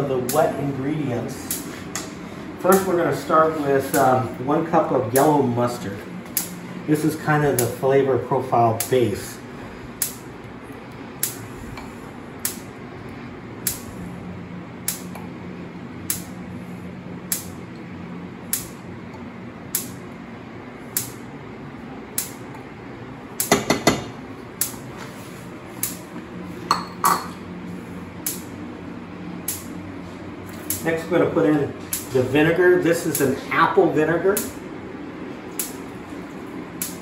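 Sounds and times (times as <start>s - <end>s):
low steady hum: 0.0s - 37.0s
ceramic bowl clink: 26.7s - 27.4s.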